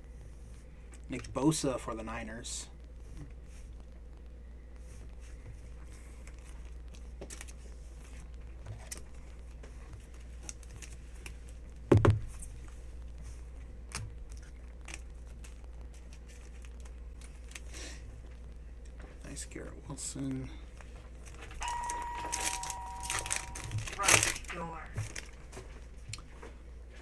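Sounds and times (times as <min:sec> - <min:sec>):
steady low hum: 0:00.0 - 0:27.0
cards and plastic rustling: 0:05.2 - 0:26.5.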